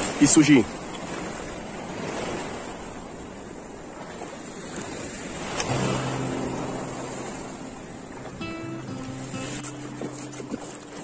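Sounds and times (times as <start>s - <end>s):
small waves washing: 0.0s - 11.0s
low held background music: 5.8s - 11.0s.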